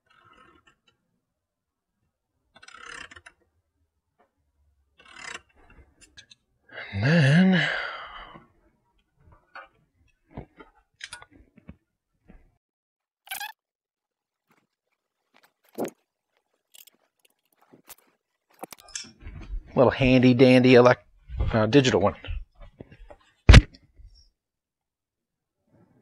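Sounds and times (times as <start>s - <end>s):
metal box and tools clicking: 16.7s - 19.1s.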